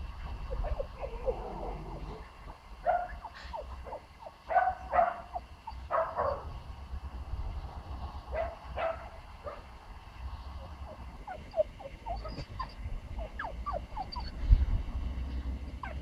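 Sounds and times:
wind rumbling on microphone: 0.0s - 3.1s, 4.9s - 16.0s
puppy yipping and barking: 2.8s - 6.4s, 10.8s - 14.4s, 15.8s - 16.0s.

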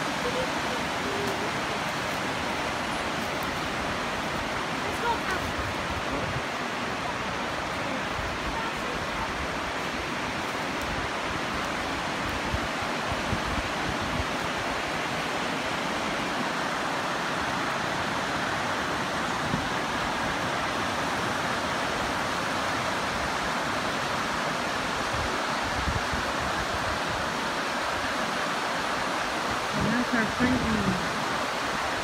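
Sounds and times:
river rapids rushing over rocks: 0.0s - 32.0s.

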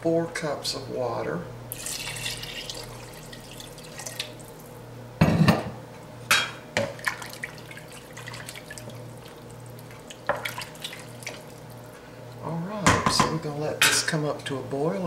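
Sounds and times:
water pouring into pot: 1.7s - 4.7s, 7.0s - 11.9s
wooden spoon stirring liquid: 7.0s - 12.0s.

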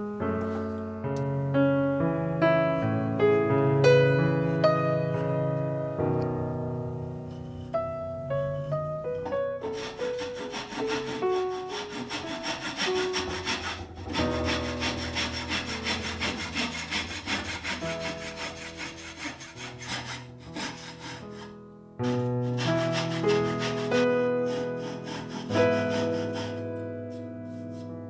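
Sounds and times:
soft piano music: 0.0s - 28.0s
hand saw cutting wood: 9.6s - 27.9s.

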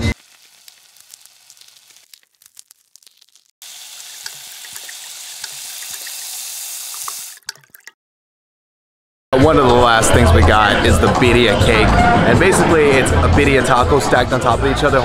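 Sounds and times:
food sizzling on a griddle: 0.0s - 7.3s.

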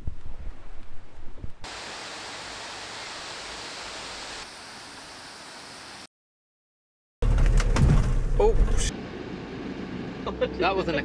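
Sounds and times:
rushing water: 1.6s - 6.1s.

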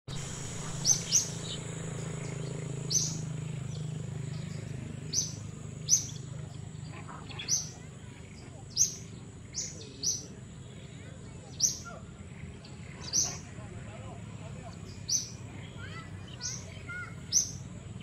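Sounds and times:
short high bird chirps: 0.1s - 3.9s
high-pitched whine: 0.1s - 5.6s
low hum: 0.1s - 15.6s.

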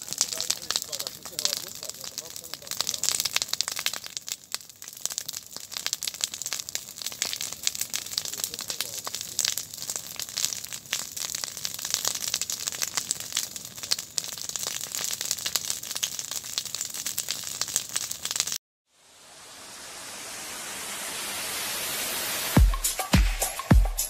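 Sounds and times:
fire crackling and popping: 0.0s - 18.6s
rising hiss: 19.0s - 24.0s.

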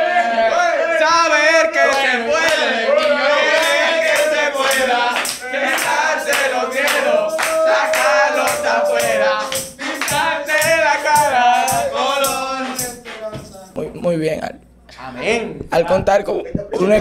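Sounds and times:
man singing: 0.0s - 13.6s
tambourine beating: 3.5s - 13.8s.

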